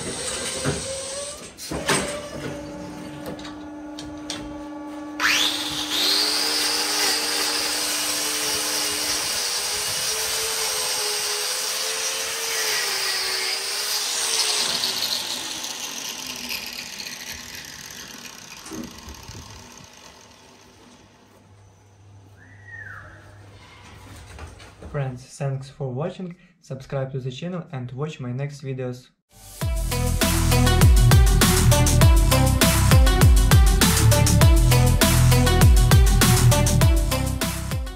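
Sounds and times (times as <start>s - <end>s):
angle grinder whining: 0.0s - 21.4s.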